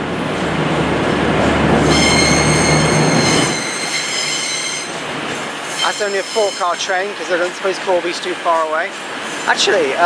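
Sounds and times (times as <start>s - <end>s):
train diesel engine drone: 0.0s - 10.0s
train wheel squeal: 1.8s - 5.0s, 5.6s - 7.6s.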